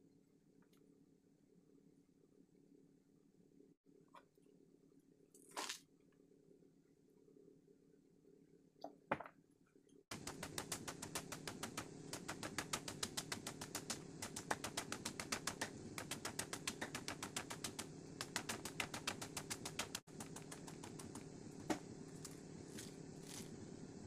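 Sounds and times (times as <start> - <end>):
steady low hum: 10.1 - 24.0.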